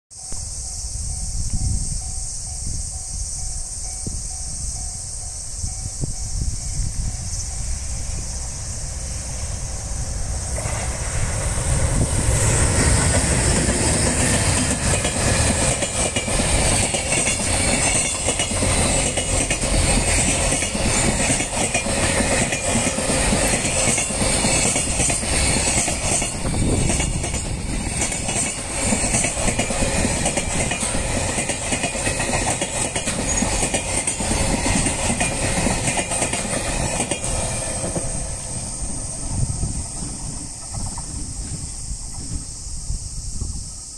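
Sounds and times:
electric locomotive passing: 0.1 - 43.9
wheels clicking over rail joints: 9.5 - 42.6.

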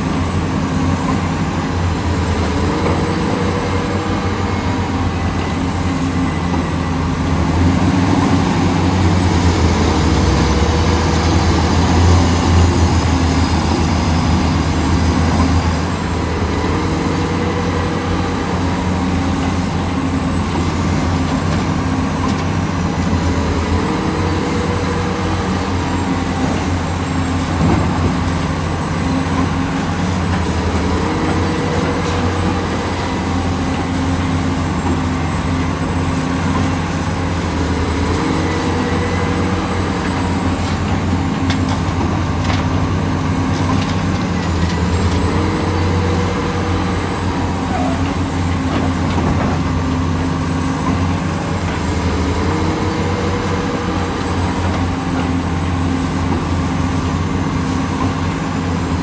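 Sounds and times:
heavy machinery diesel engine: 0.0 - 59.0.

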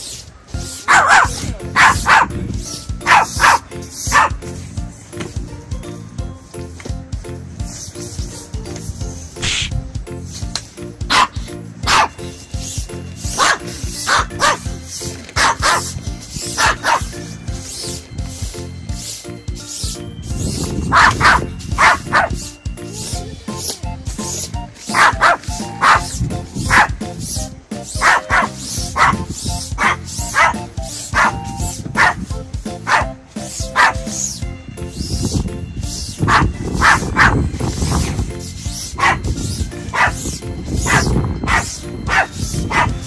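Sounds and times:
background music: 0.0 - 43.0
small dog barking: 0.9 - 2.4, 3.0 - 4.4, 11.1 - 12.2, 13.4 - 14.7, 15.4 - 15.9, 16.6 - 17.1, 20.9 - 22.4, 24.9 - 27.0, 28.0 - 34.1, 36.3 - 37.4, 39.0 - 39.2, 39.9 - 40.2, 40.8 - 43.0.

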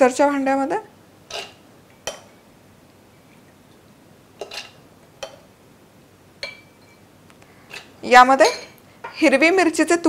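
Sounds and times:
spoon clinking against jar and bowl: 6.4 - 7.0.

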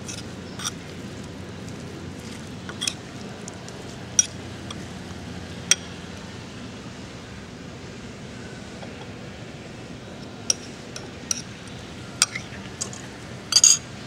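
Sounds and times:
steady background hiss: 0.0 - 14.0
metal spoon clinking on bowl: 12.2 - 13.8.

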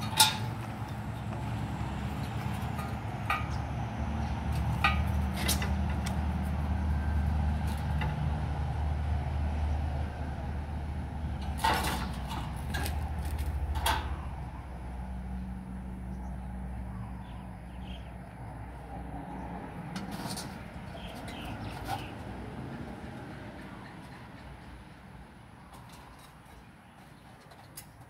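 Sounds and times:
knocks and clatters of poles and crates: 0.0 - 8.6, 11.3 - 14.2.

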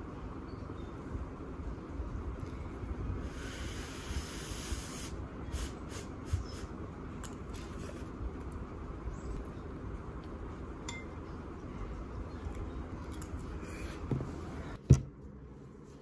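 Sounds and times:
low background rumble: 0.0 - 16.0
metal spoon clinking on ceramic bowl: 10.9 - 11.2.

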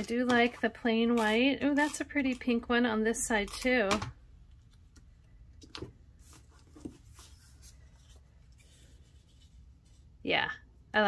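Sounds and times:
faint paper rustling: 5.7 - 10.2.

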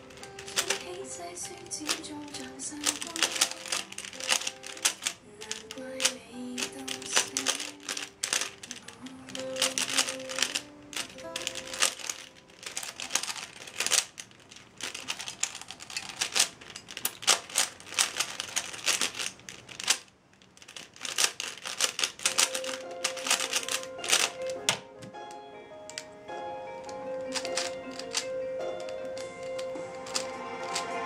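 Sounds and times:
background music: 0.0 - 12.7, 22.3 - 31.0
puzzle cube layers clacking: 0.0 - 31.0.

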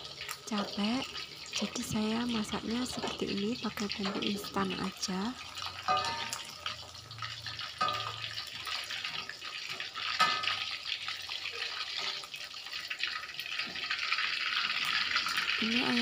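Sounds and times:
chicken sizzling in hot oil: 0.0 - 16.0
metal clinking against wok: 5.6 - 6.9, 7.5 - 10.8.

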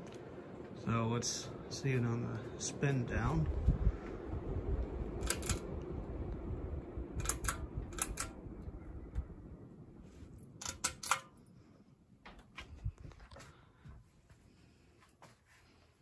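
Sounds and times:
ceiling fan winding down: 0.0 - 14.0
pull-chain switch clicks: 5.2 - 5.7, 7.2 - 8.4, 10.6 - 11.4.

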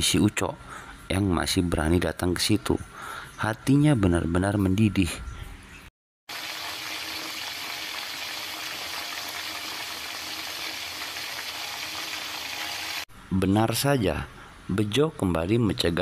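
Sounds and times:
water boiling: 6.3 - 13.0.

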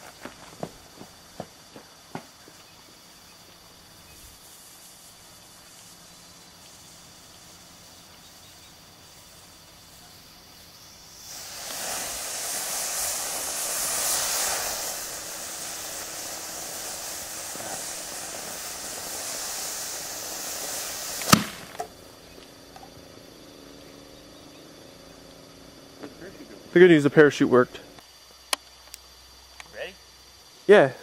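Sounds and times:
rocket motor burning with loud hiss: 3.0 - 28.8
sharp bang: 21.2 - 21.8
small pop: 21.2 - 21.9.

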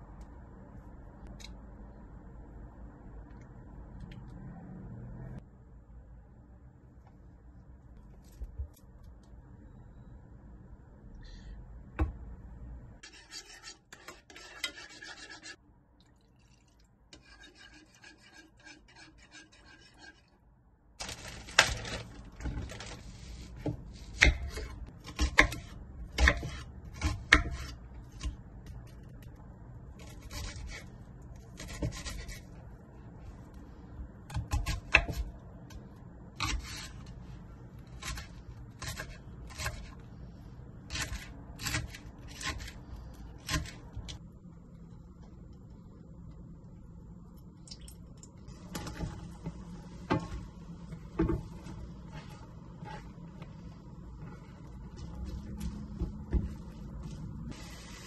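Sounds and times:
soft scraping and rubbing: 48.5 - 58.0.

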